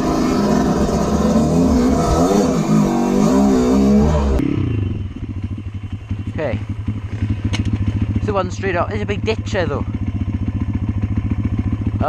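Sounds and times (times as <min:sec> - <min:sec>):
dirt bike engine revving: 0:00.0 - 0:12.0
engine idling: 0:04.8 - 0:12.0.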